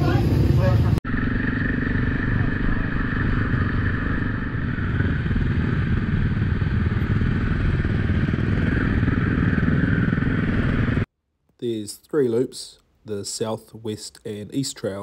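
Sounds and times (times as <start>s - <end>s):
dirt bike engine running: 0.0s - 11.1s.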